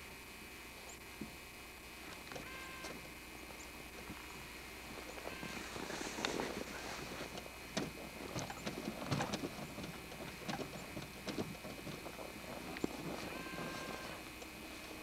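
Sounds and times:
rustling: 0:04.9 - 0:15.0.

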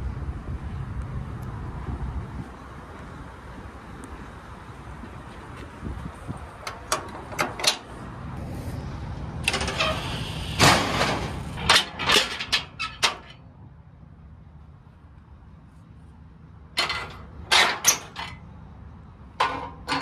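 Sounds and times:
steady low rumble: 0:00.0 - 0:11.8
metallic clanks and rattles: 0:06.6 - 0:07.9, 0:09.4 - 0:13.4, 0:16.8 - 0:18.4, 0:19.4 - 0:20.0.

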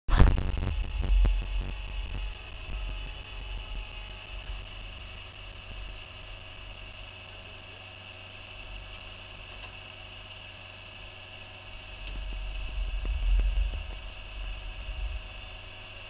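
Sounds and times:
low rumble: 0:00.1 - 0:06.4, 0:11.8 - 0:16.0.

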